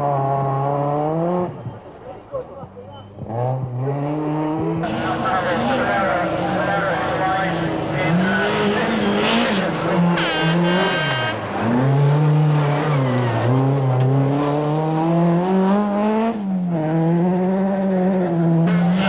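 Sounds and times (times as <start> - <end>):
rally car engine at full load: 0.0 - 19.0.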